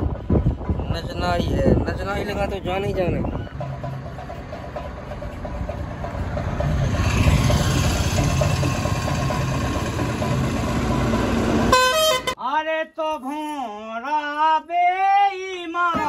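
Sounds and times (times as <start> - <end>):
motorcycle engine rumbling: 3.1 - 12.4
man singing: 12.4 - 16.0.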